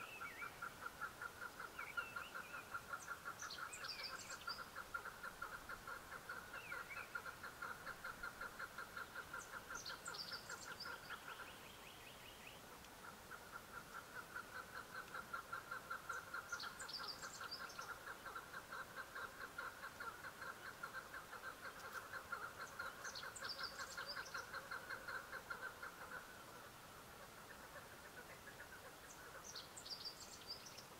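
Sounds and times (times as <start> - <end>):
partridge clucking call: 0.0 - 11.6, 13.0 - 26.4.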